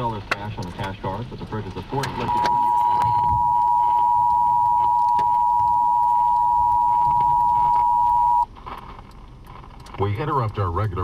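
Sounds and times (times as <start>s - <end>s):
loud two-tone alert beep: 2.3s - 8.4s.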